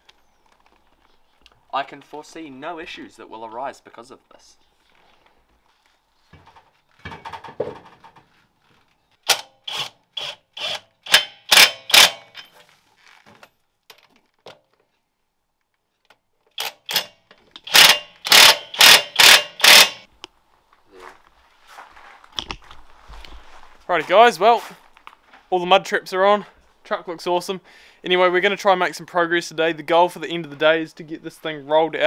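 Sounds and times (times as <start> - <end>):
impact wrench rattling: 9.2 - 12.6, 16.5 - 20.1.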